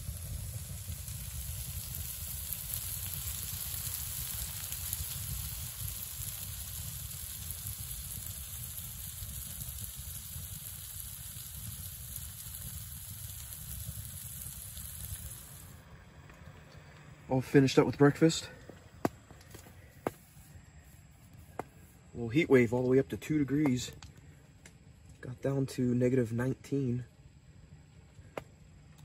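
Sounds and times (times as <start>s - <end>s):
batter sizzling in a pan: 0.0s - 15.8s.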